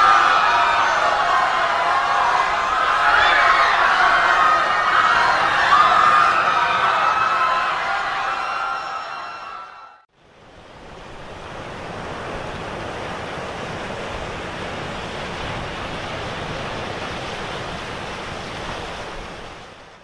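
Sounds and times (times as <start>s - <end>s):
crowd clamour: 0.0s - 10.0s
sea water washing: 10.3s - 20.0s.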